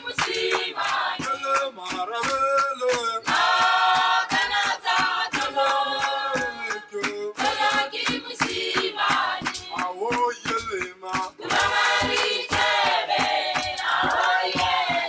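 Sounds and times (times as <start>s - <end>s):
percussive beat: 0.0s - 15.0s
voices singing together: 0.0s - 15.0s.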